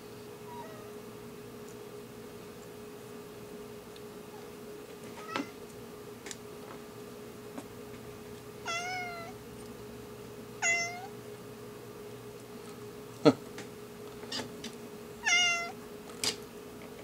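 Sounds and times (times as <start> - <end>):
cat meowing: 0.5 - 0.9, 5.2 - 5.6, 8.7 - 9.4, 10.6 - 11.1, 15.2 - 15.8.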